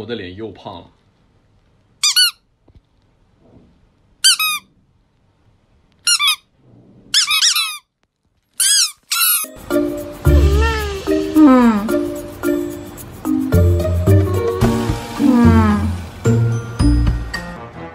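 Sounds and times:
squeaky toy peeps: 0:02.0 - 0:02.4, 0:04.2 - 0:04.7, 0:06.0 - 0:06.5, 0:07.2 - 0:07.9, 0:08.6 - 0:09.6.

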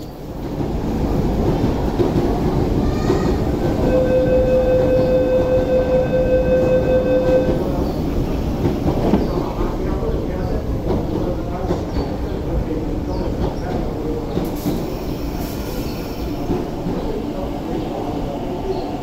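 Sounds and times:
train rumbling: 0:00.0 - 0:19.0
electronic warning tone: 0:03.8 - 0:07.6.

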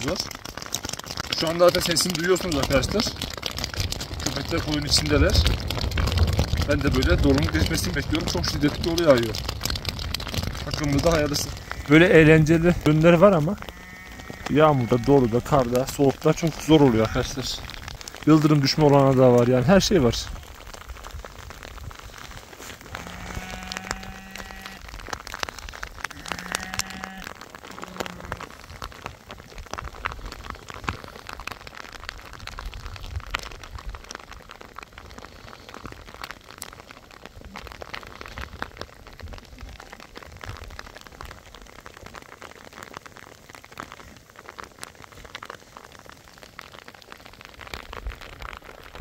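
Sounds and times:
heavy hail pelting down: 0:00.0 - 0:49.0
sheep bleating: 0:11.2 - 0:12.6, 0:13.3 - 0:15.5, 0:16.7 - 0:17.4, 0:22.9 - 0:24.8, 0:26.1 - 0:28.4.

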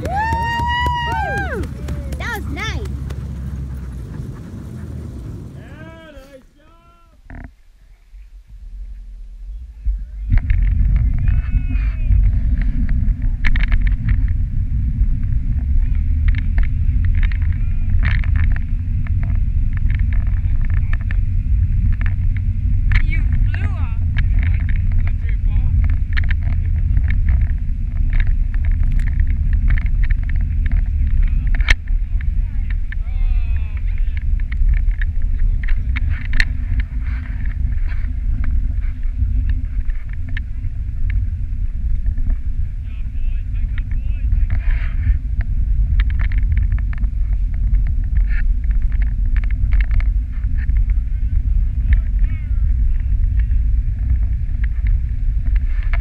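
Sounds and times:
sled and wind rumble: 0:00.0 - 0:56.0
small clicks and scrapes: 0:10.3 - 0:14.5, 0:15.2 - 0:43.0, 0:43.6 - 0:56.0.

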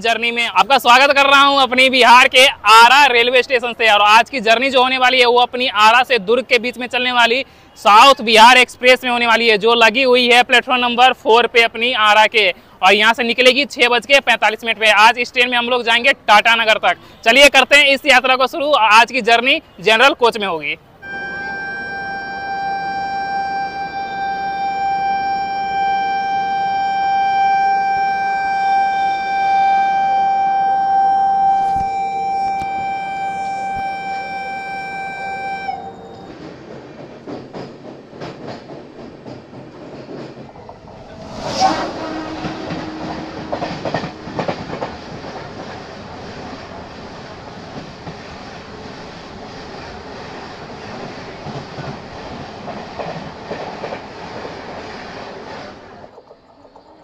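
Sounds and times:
train horn long blast: 0:21.0 - 0:36.3, 0:40.8 - 0:44.9
train rushing past: 0:35.4 - 0:57.0
wheels clacking over rail joints: 0:36.2 - 0:41.3, 0:42.1 - 0:57.0.

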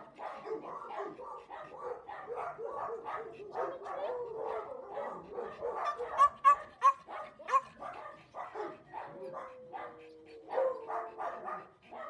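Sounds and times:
sharp dog barks: 0:00.0 - 0:12.0
small dogs yipping: 0:01.0 - 0:12.0.

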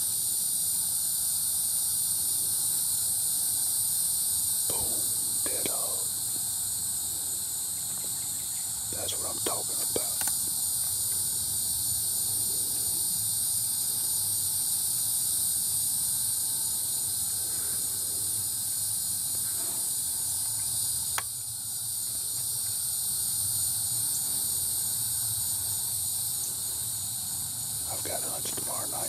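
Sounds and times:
chorus of night insects: 0:00.0 - 0:29.0.

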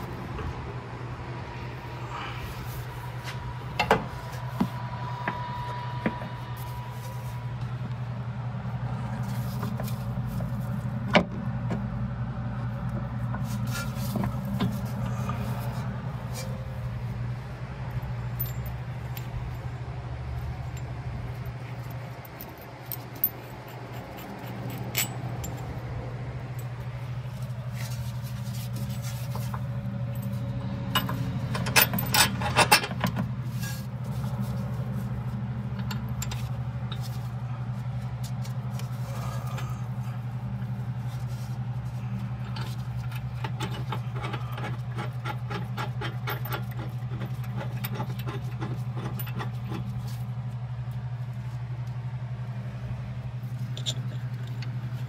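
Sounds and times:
steady low hum: 0:00.0 - 0:55.0
metal clinks and scrapes: 0:17.9 - 0:19.8, 0:20.4 - 0:25.9, 0:26.5 - 0:50.5, 0:53.4 - 0:55.0.

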